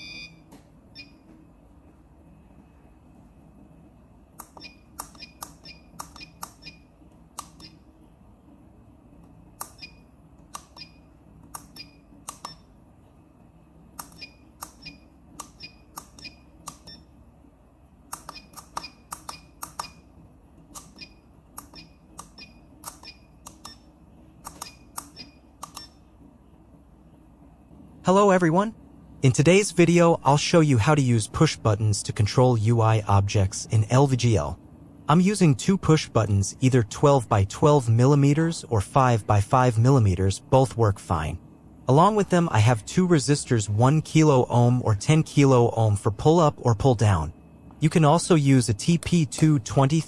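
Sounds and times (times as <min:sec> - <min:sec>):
faint low hum: 0:00.0 - 0:50.0
push buttons clicking: 0:04.4 - 0:07.8, 0:09.2 - 0:12.7, 0:13.9 - 0:17.0, 0:18.1 - 0:20.0, 0:20.7 - 0:26.0.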